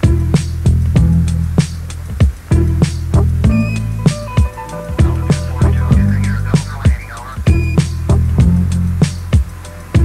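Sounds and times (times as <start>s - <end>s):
music with drum beat and bass: 0.0s - 10.0s.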